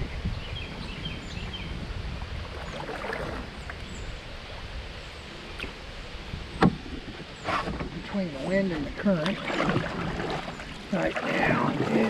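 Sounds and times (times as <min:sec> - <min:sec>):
water and wind rumble: 0:00.0 - 0:12.0
paddle swishing through water: 0:02.5 - 0:03.9, 0:06.6 - 0:12.0.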